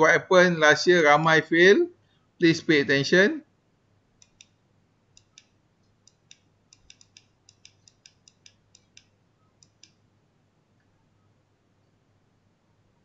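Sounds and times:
computer mouse clicks: 0:04.2 - 0:10.0.

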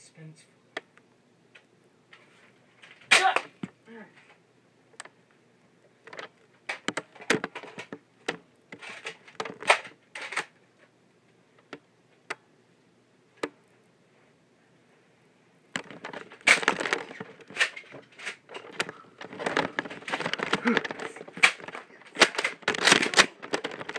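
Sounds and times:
rustling: 0:02.1 - 0:04.4, 0:05.0 - 0:12.3, 0:15.7 - 0:23.9
sharp clicks and knocks: 0:06.0 - 0:10.9, 0:15.7 - 0:23.9.

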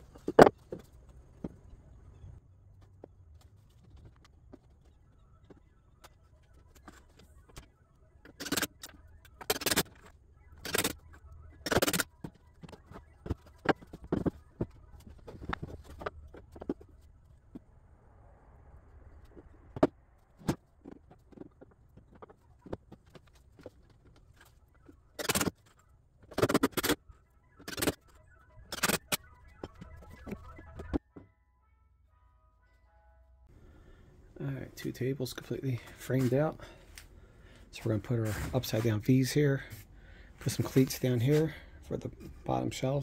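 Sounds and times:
wooden parts and tools knocking: 0:00.0 - 0:01.8, 0:08.3 - 0:17.6.

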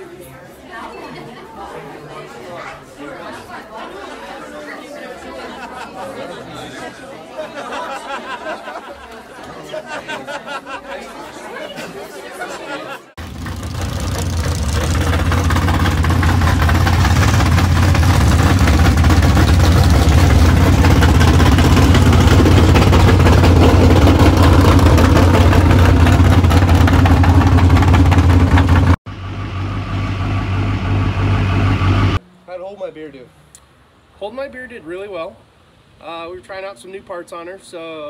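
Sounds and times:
quieter engine running: 0:13.2 - 0:32.2
truck engine revving hard: 0:13.2 - 0:32.2.

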